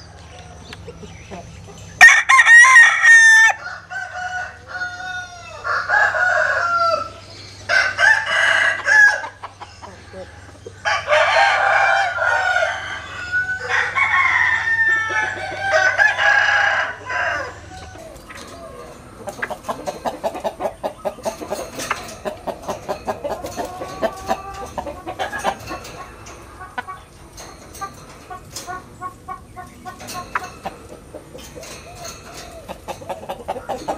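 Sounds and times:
rooster crowing: 2.0 - 9.4, 10.0 - 19.0.

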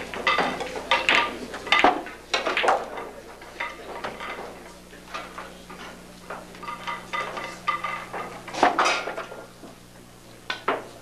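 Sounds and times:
cue striking ball: 0.0 - 2.9
pool balls clicking: 0.0 - 11.0.

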